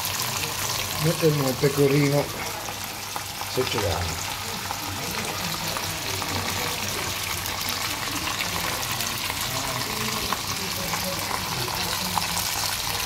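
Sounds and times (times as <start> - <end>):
meatballs sizzling in a frying pan: 0.0 - 13.0.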